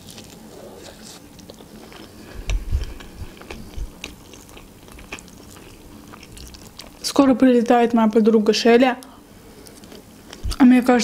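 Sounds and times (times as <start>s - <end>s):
chewing with wet mouth clicks: 1.3s - 7.1s.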